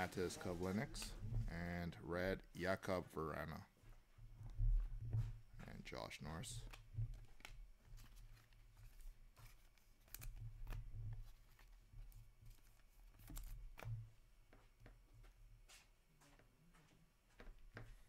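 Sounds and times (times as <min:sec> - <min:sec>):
cards shuffling: 0:06.6 - 0:14.0.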